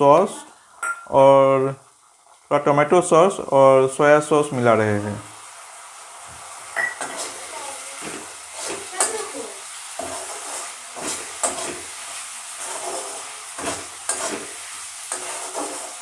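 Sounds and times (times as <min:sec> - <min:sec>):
food sizzling in a pan: 0:00.0 - 0:16.0
wooden spatula scraping a pan: 0:07.0 - 0:16.0.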